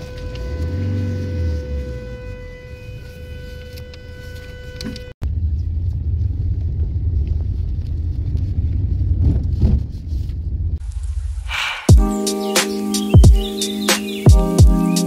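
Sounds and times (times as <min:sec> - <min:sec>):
car engine rumble inside cabin: 0:00.0 - 0:02.4
road noise: 0:00.0 - 0:14.4.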